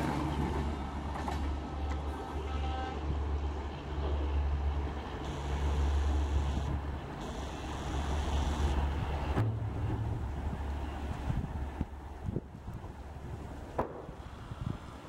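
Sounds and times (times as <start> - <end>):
train wheels rumbling on track: 0.0 - 15.0
wind buffeting microphone: 8.7 - 15.0.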